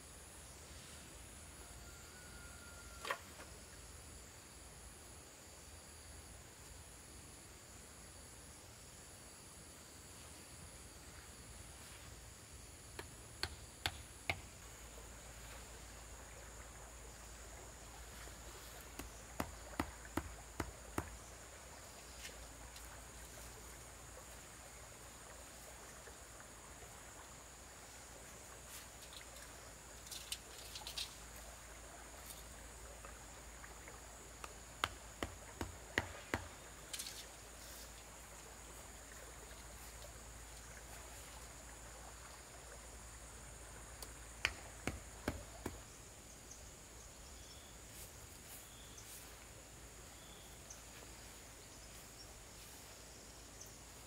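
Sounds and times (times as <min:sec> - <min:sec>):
high insect drone: 0:00.0 - 0:54.0
tool knocking wooden stakes: 0:13.0 - 0:14.5, 0:18.9 - 0:21.2, 0:34.8 - 0:36.6, 0:44.4 - 0:45.9.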